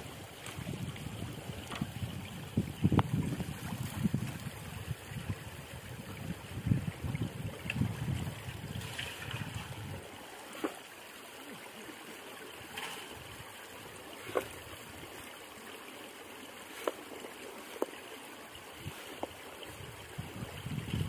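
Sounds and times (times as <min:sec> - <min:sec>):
water trickling and dripping: 0:00.0 - 0:21.0
sharp water splashes: 0:16.5 - 0:19.9.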